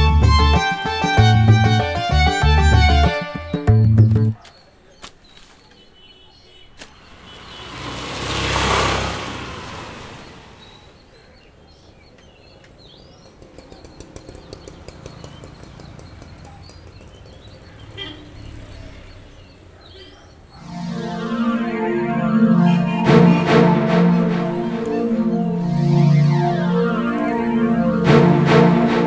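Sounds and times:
vehicle passing: 0:07.0 - 0:11.1, 0:20.6 - 0:29.0
small bird chirps: 0:10.6 - 0:20.5.

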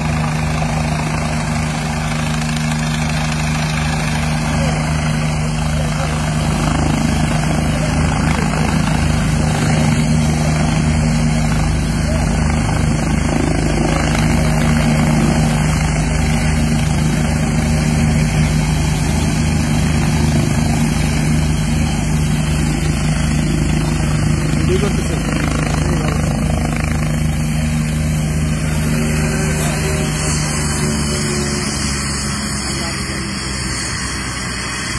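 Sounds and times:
helicopter rotor and turbine: 0:00.0 - 0:34.9.

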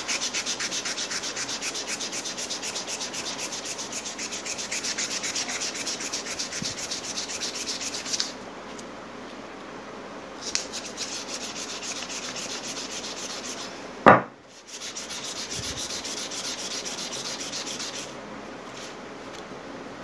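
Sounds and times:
sanding metal by hand: 0:00.0 - 0:08.3, 0:10.4 - 0:13.7, 0:14.5 - 0:18.1
sharp loud knock: 0:14.1 - 0:14.4.

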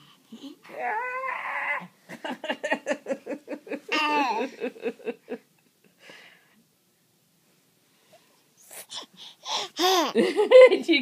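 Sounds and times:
toddler giggling: 0:03.7 - 0:04.8, 0:09.5 - 0:10.6
faint breath: 0:06.0 - 0:06.7, 0:07.9 - 0:09.8.

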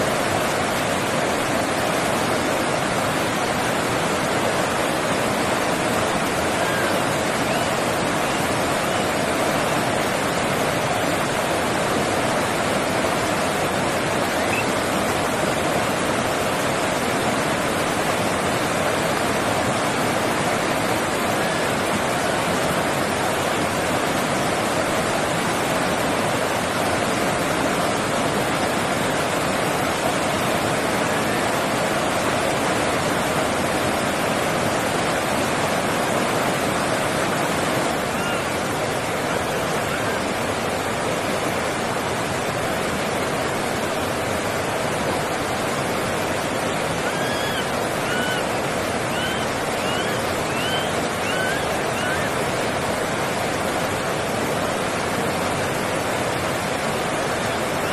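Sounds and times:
short chirping calls: 0:47.1 - 0:48.5, 0:49.1 - 0:52.3.

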